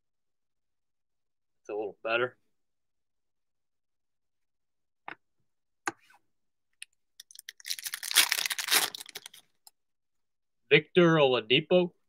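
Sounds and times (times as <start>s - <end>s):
foil wrapper tearing and crinkling: 7.2s - 9.4s.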